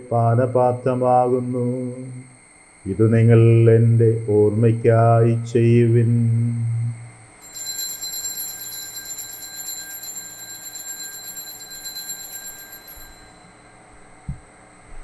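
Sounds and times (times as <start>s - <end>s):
bell ringing in fast peal: 7.4s - 13.9s.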